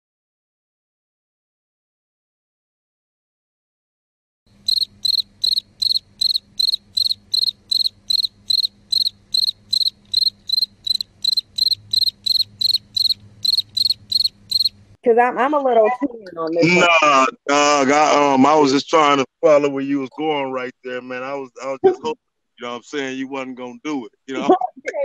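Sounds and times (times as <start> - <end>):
faint low hum: 4.5 - 25.0
high-pitched chirping: 4.7 - 14.8
person speaking: 15.1 - 25.0.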